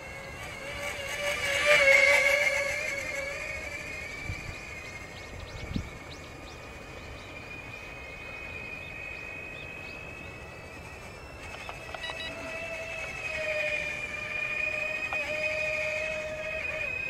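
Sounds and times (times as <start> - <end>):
high electric fan whine: 0.0 - 17.0
lower wavering fan whine: 0.0 - 17.0.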